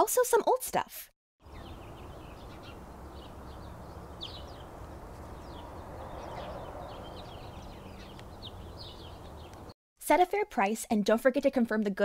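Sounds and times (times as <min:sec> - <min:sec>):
small birds chirping: 0:01.4 - 0:09.8.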